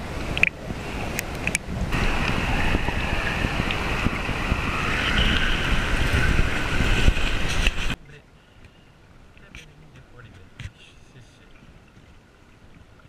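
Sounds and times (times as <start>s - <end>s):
river water rushing: 0.0s - 13.0s
muffled low rumble: 1.8s - 8.2s.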